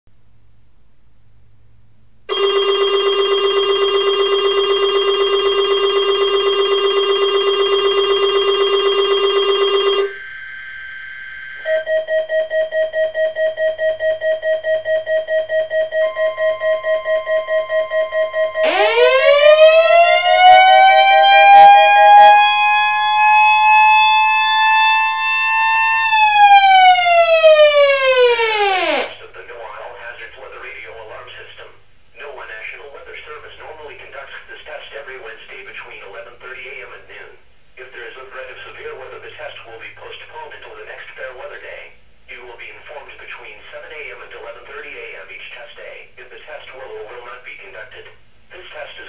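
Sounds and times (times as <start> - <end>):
rapidly pulsing beep: 2.3 - 20.1
electronic siren wailing: 2.3 - 29.2
loud buzzing alarm tone: 2.3 - 29.2
steady high tone: 2.3 - 29.2.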